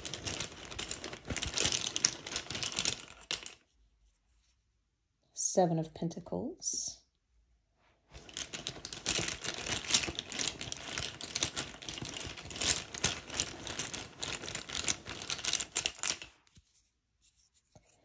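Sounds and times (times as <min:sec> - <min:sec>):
tiles clicking and clattering: 0:00.0 - 0:03.7, 0:08.1 - 0:16.6
rustling: 0:00.0 - 0:04.7, 0:07.8 - 0:18.0.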